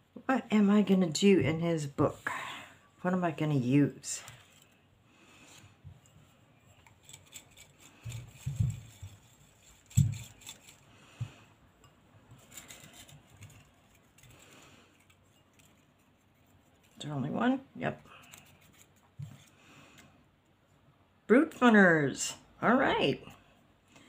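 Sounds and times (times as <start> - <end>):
paper strips rattling in bowl: 6.9 - 10.9, 12.4 - 17.1.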